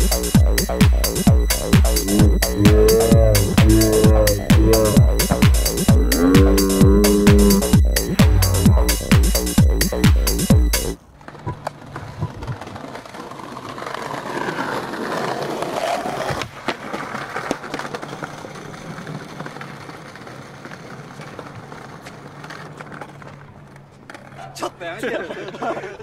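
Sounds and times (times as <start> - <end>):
electronic dance music: 0.0 - 11.0
skateboard wheels rolling on stone: 11.0 - 25.6
skateboard clacks: 11.0 - 25.7.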